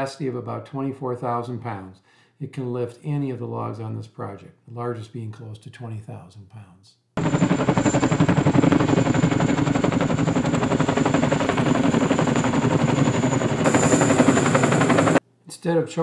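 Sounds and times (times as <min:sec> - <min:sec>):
helicopter rotor chopping: 0:07.2 - 0:15.2
turbine whine: 0:07.2 - 0:15.2.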